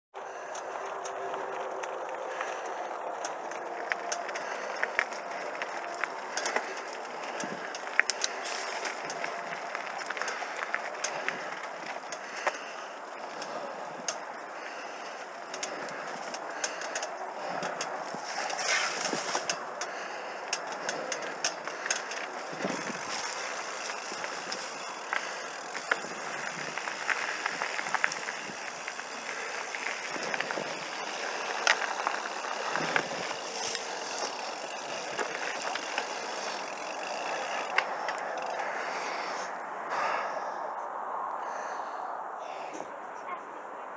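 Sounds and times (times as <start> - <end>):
bike clicking and rattling: 0.2 - 40.3
bike tyres crunching on gravel: 0.2 - 40.3.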